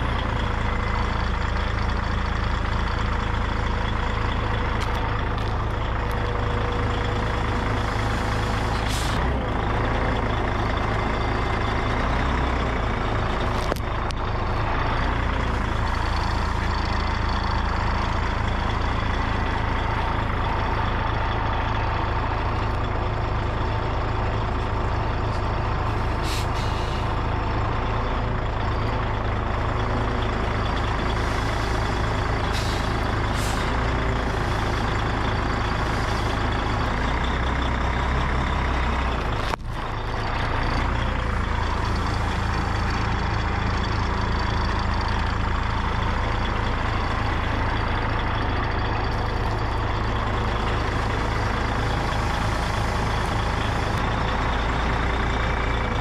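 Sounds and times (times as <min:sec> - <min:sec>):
truck engine idling: 0:00.0 - 0:56.0
short air hisses: 0:26.2 - 0:27.1.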